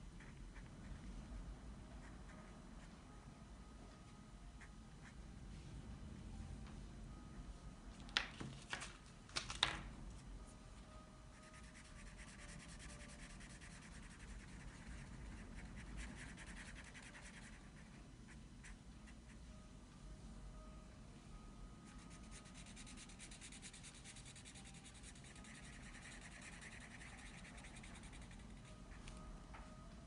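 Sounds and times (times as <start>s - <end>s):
pencil scratching on paper: 11.4s - 18.0s, 21.9s - 28.6s.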